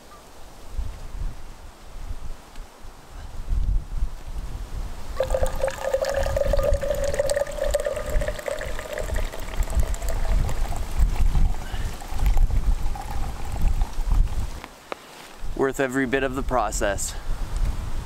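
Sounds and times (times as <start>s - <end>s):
wind rumble on microphone: 0.6s - 14.7s, 16.4s - 18.0s
coffee pouring into a steel tumbler: 5.2s - 14.4s.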